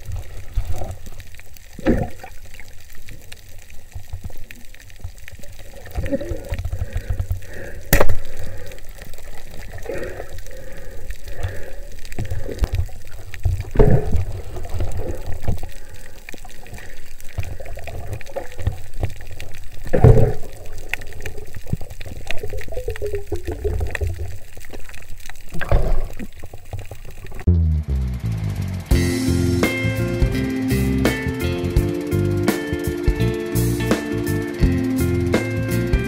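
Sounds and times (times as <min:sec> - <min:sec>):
water gurgles and swishes: 0:00.0 - 0:27.5
low underwater rumble: 0:00.0 - 0:29.1.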